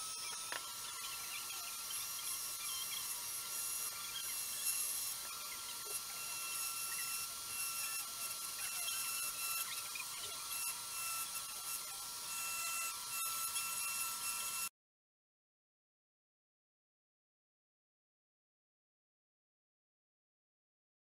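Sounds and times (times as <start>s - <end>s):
bit grinding on glass: 0.0s - 14.7s
rotary tool whining: 0.0s - 14.7s.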